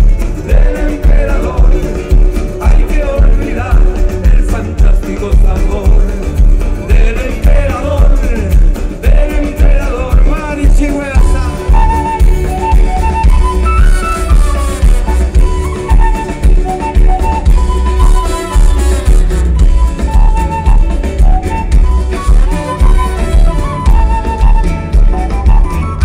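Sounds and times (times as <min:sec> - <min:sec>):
live band playing folk-rock: 0:00.0 - 0:26.0
wooden flute melody: 0:10.4 - 0:26.0.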